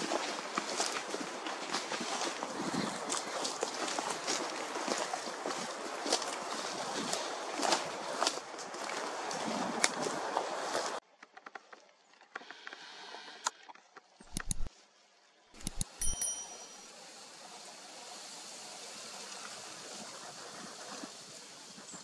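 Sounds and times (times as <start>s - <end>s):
sharp clicks: 14.2s - 14.7s, 15.6s - 16.3s
steady outdoor hiss: 14.3s - 22.0s
ringing bell-like ding: 15.6s - 16.9s.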